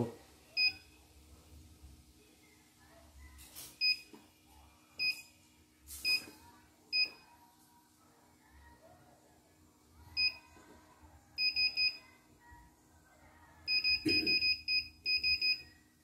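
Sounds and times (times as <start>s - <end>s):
keypad beeps: 13.7s - 15.7s.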